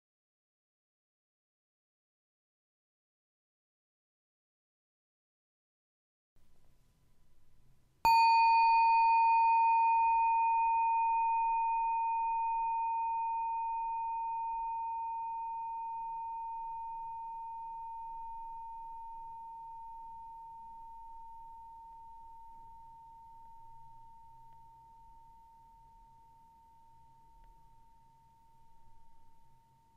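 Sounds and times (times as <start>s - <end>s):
meditation bell ringing: 8.0s - 29.9s.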